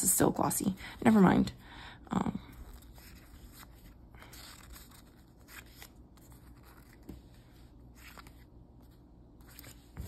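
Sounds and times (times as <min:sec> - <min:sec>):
sticker sheets rustling: 0:02.6 - 0:10.0.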